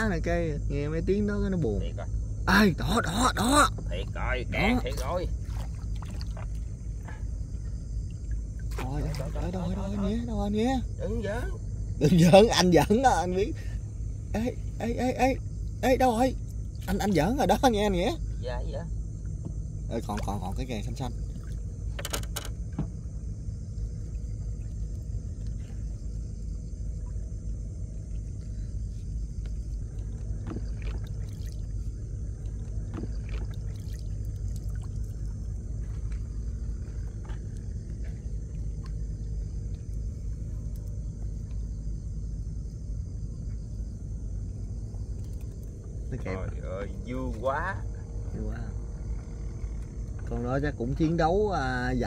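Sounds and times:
boat engine rumbling: 0.0 - 52.0.

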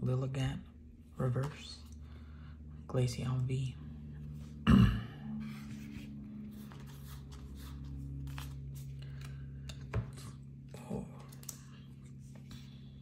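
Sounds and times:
low hum: 0.0 - 13.0
cards rustling and clicking: 5.5 - 10.4, 11.0 - 12.9.

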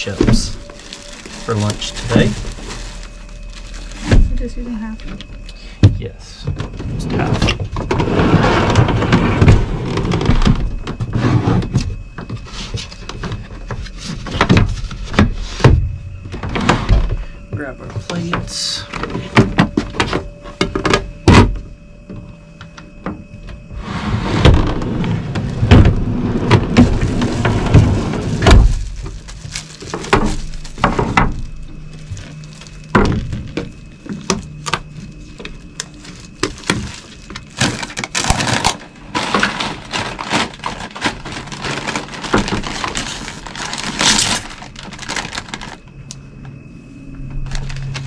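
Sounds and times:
plastic packaging crackling: 0.0 - 5.5, 24.6 - 46.1, 47.4 - 48.0.

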